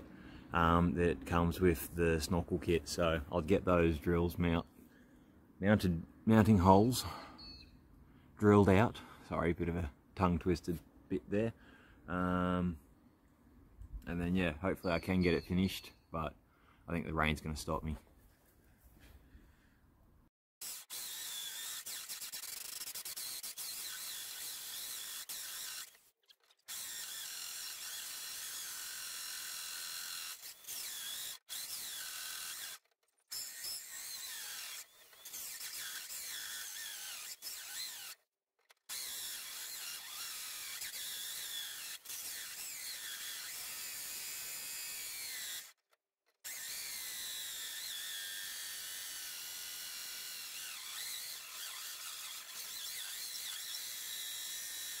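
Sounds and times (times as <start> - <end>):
drill hole saw cutting metal: 20.6 - 45.8, 46.4 - 55.0.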